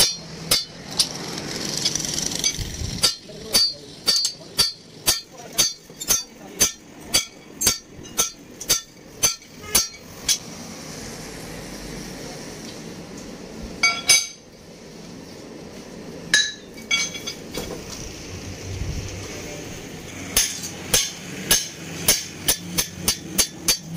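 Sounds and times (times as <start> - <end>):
sledgehammer striking steel on anvil: 0.0 - 1.1, 1.8 - 10.4, 13.8 - 14.4, 20.3 - 23.9
metal clanks and clinks: 0.0 - 10.4, 13.8 - 14.4, 16.3 - 17.8.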